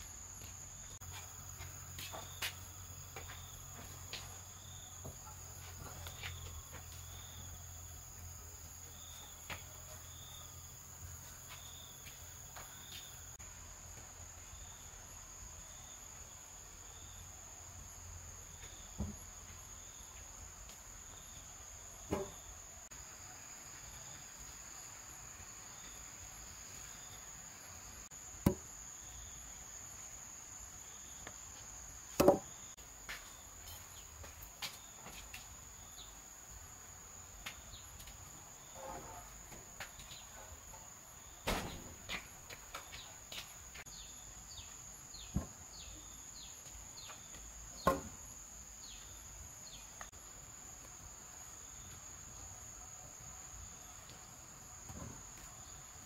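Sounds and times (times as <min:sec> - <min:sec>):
insects droning: 0:00.0 - 0:56.0
wooden beams knocking down: 0:22.0 - 0:22.5, 0:28.4 - 0:28.7, 0:32.2 - 0:32.6, 0:41.4 - 0:42.3, 0:47.8 - 0:48.2.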